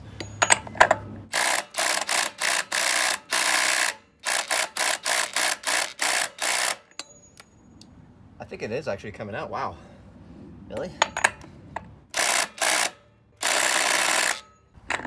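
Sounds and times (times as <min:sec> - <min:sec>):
impact drill hammering: 0:01.3 - 0:06.8, 0:12.2 - 0:14.4.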